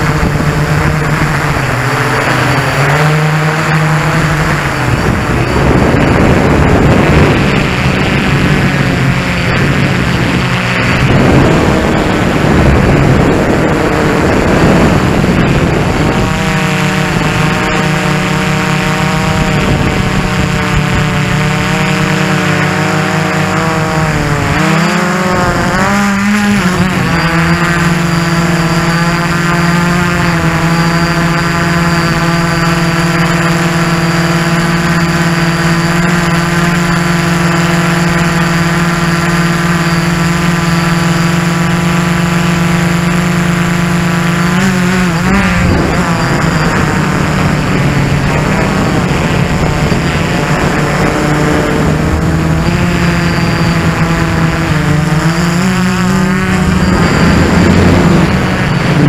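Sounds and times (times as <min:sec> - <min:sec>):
wind rushing: 0:00.0 - 0:18.3, 0:56.0 - 0:59.0
quadcopter motors droning: 0:00.0 - 0:59.0.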